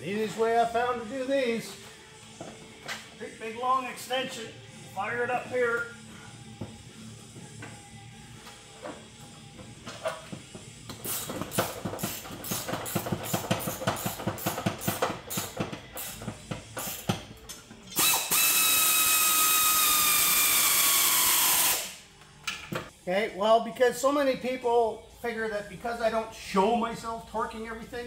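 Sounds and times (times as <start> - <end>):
hand ratchet clicking: 11.0 - 22.0
power ratchet whining: 17.9 - 22.0.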